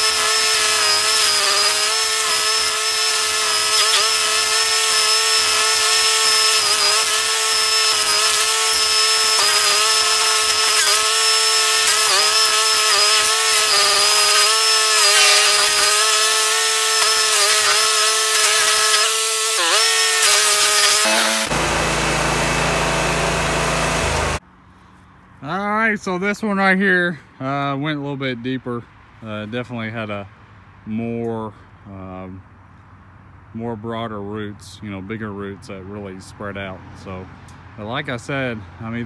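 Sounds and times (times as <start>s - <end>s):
cutting wheel grinding wood: 0.0s - 24.4s
stump grinder engine: 0.0s - 24.4s.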